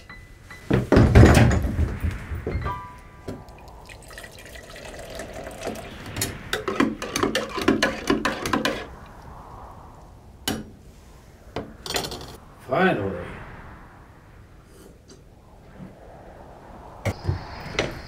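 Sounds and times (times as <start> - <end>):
water pouring into metal mug: 3.8 - 5.9.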